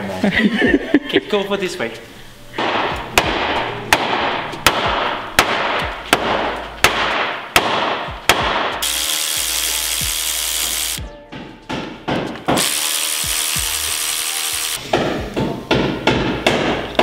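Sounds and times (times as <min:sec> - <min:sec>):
power tool running: 0:08.8 - 0:11.0, 0:12.5 - 0:14.8.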